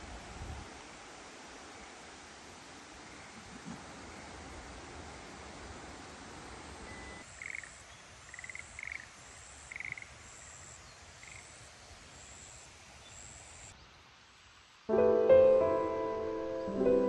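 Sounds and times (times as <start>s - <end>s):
steady hiss: 0.0s - 17.0s
frog croaking: 7.3s - 9.1s, 9.7s - 10.1s.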